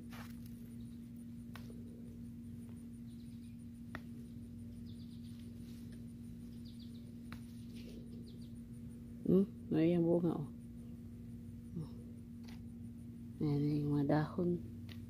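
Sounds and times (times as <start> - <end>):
steady low hum: 0.0 - 15.0
small bird chirping: 0.6 - 1.4, 2.5 - 9.4
leaves snapping when picked: 1.4 - 1.9, 3.8 - 4.3, 7.2 - 7.8.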